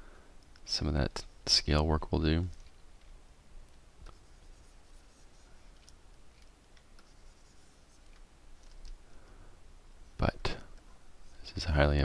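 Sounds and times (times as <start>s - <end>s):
soft scratching: 4.0s - 9.0s, 10.0s - 12.0s.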